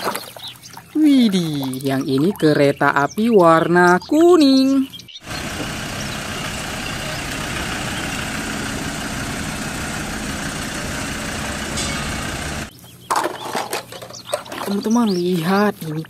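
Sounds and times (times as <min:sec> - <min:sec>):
road train engine passing: 0:05.2 - 0:12.7.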